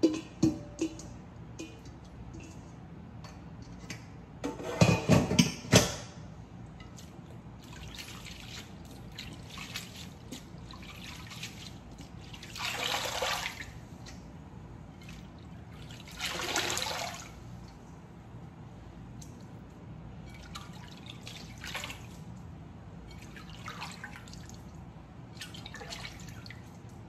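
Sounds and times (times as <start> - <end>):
hands swishing vegetables in water: 6.9 - 14.2.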